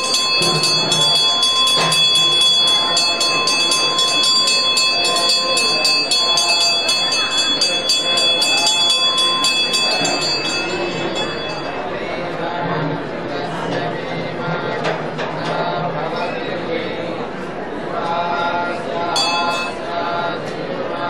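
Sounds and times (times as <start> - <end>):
hand bell ringing rapidly: 0.0 - 12.0, 19.2 - 19.8
voices: 0.0 - 21.0.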